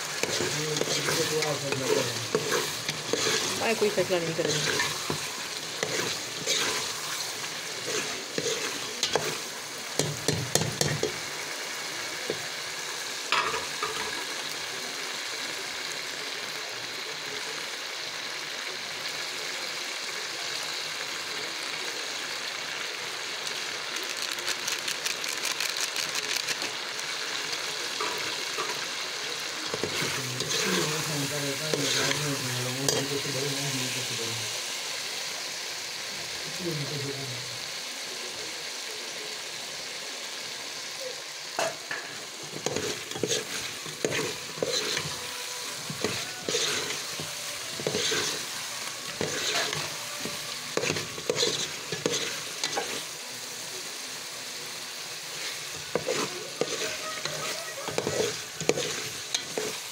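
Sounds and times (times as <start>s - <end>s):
spoon stirring against a pot: 0.0s - 11.3s, 29.6s - 33.3s, 41.6s - 53.1s, 55.4s - 59.9s
chicken sizzling in a metal pot: 0.0s - 59.9s.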